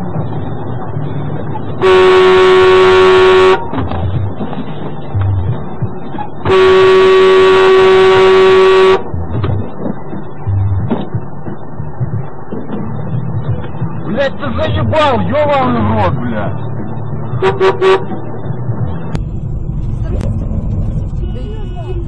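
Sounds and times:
vehicle rumble on highway: 0:00.0 - 0:22.0
vehicle horn blasts: 0:01.8 - 0:03.8, 0:06.4 - 0:09.1, 0:17.4 - 0:18.2, 0:20.8 - 0:22.0.

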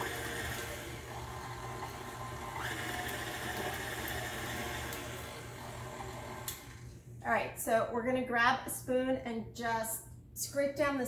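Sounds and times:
stand mixer motor whining: 0:00.0 - 0:06.9.

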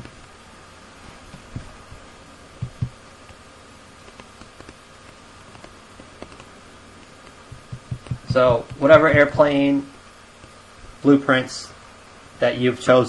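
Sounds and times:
faint high whine: 0:00.0 - 0:13.0
microphone hiss: 0:00.0 - 0:13.0.

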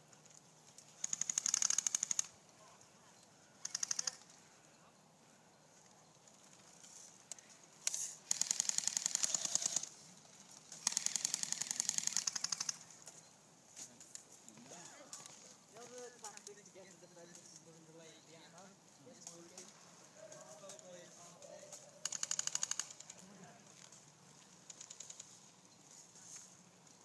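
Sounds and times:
airsoft guns firing bursts: 0:01.0 - 0:02.3, 0:03.6 - 0:04.3, 0:08.2 - 0:09.9, 0:10.8 - 0:12.9, 0:22.0 - 0:23.2.

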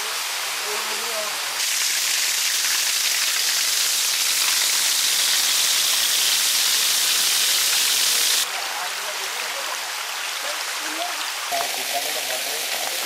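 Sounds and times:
small waterfall splashing on rock: 0:00.8 - 0:13.0.

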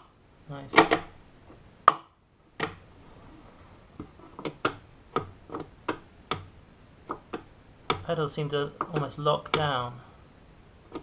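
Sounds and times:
pedal clicks and knocks: 0:00.7 - 0:01.2, 0:04.0 - 0:06.5, 0:07.1 - 0:08.1, 0:08.8 - 0:09.8.

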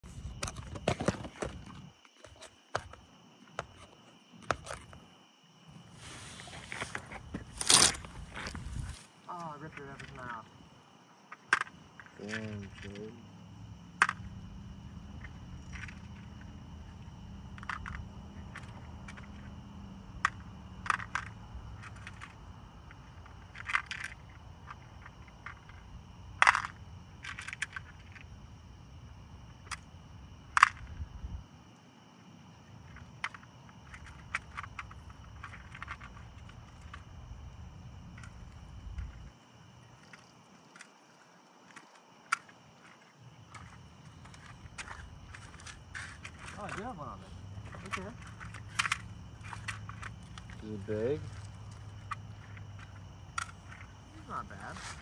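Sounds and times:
crunching and rustling: 0:00.0 - 0:05.0, 0:05.7 - 0:13.3, 0:13.9 - 0:28.4, 0:32.7 - 0:55.0
low rustling: 0:05.7 - 0:10.8.

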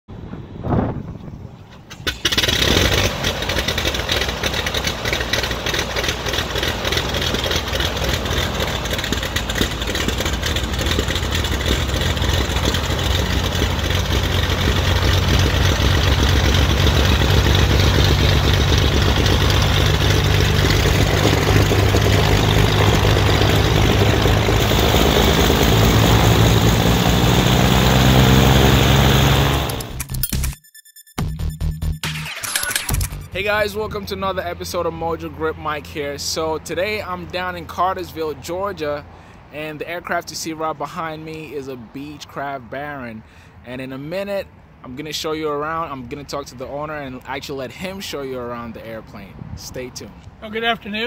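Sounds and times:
twin piston engines idling: 0:02.1 - 0:29.8.

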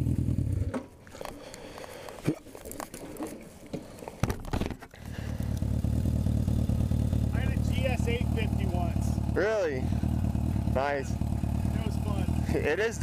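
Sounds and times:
motorcycle engine idling: 0:00.0 - 0:00.7, 0:05.0 - 0:13.0
engine rumble: 0:00.0 - 0:01.8, 0:04.9 - 0:13.0.

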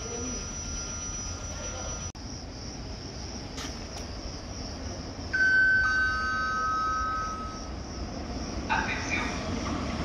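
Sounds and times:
two-tone public-address chime: 0:00.0 - 0:02.1, 0:05.4 - 0:07.8.

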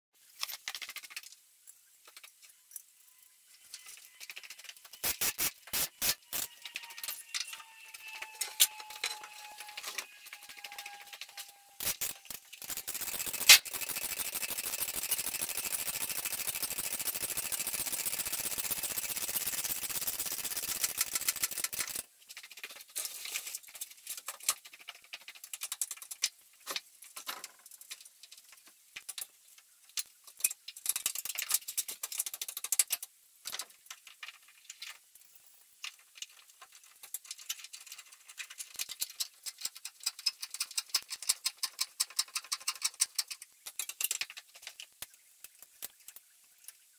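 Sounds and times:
steady hiss: 0:04.9 - 0:06.5, 0:11.8 - 0:22.1
sharp click: 0:05.0 - 0:06.5.

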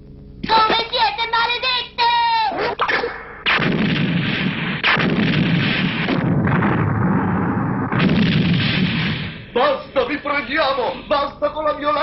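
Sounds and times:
cartoon explosion blasts: 0:02.6 - 0:09.5.

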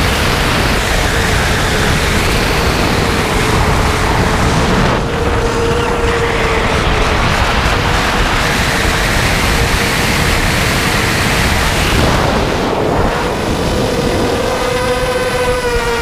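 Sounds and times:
drone motors whining: 0:00.0 - 0:16.0
wind rush on microphone: 0:00.0 - 0:16.0.

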